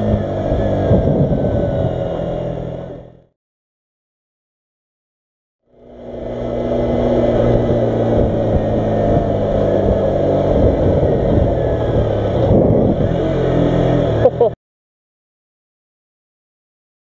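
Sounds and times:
rough wind rush: 0:00.0 - 0:03.1, 0:05.8 - 0:14.2
motorcycle engine running: 0:00.0 - 0:03.3, 0:05.7 - 0:14.6.

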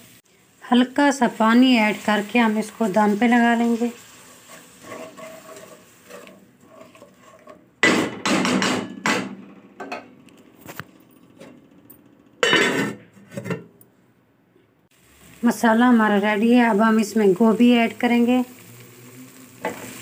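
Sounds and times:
spatula scraping a pan: 0:02.9 - 0:07.7.

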